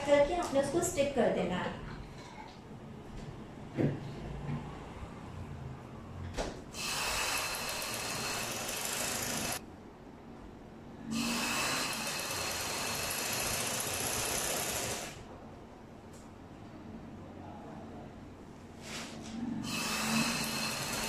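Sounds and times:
sewing machine stitching: 6.8s - 9.6s, 11.2s - 15.2s, 19.7s - 21.0s.

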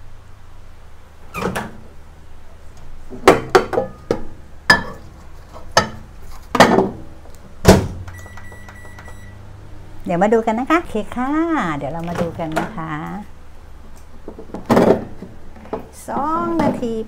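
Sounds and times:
microwave keypad beeps: 8.1s - 9.4s.

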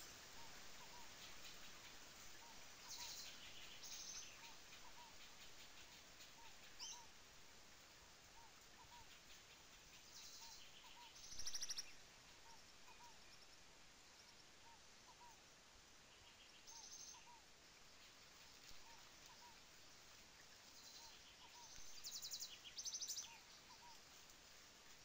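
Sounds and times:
bird trills: 8.4s - 13.4s.

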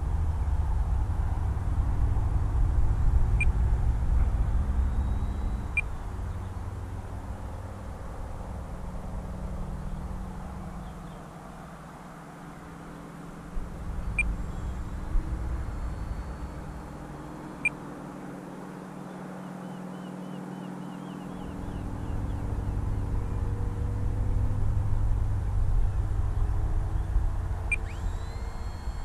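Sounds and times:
low rumble on microphone: 0.0s - 11.3s, 21.4s - 29.0s
electric motor drone: 0.0s - 18.3s, 21.2s - 29.0s.

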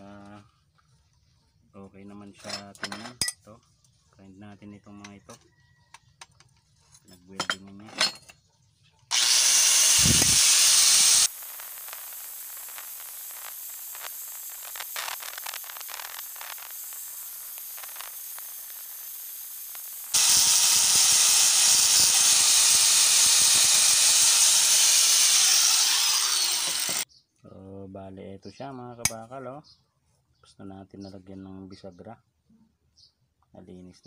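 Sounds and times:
angle grinder grinding steel: 9.1s - 27.0s.

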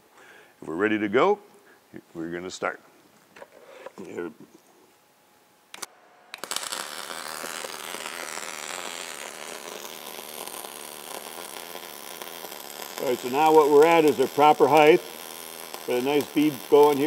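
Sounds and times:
welding arc hissing: 6.3s - 17.0s.

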